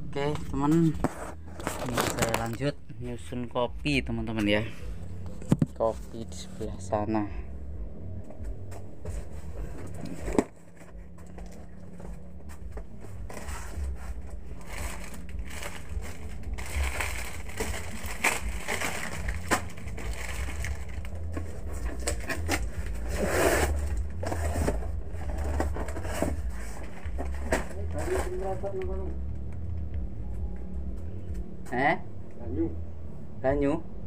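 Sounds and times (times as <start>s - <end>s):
low hum: 0.0s - 34.0s
plastic packs crinkling: 14.6s - 23.1s.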